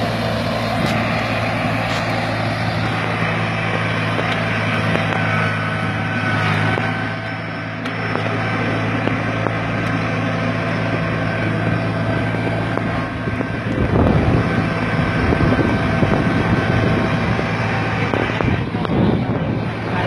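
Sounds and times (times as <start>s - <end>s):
loud rough noise: 0.0s - 20.0s
small tractor engine running: 0.0s - 20.0s.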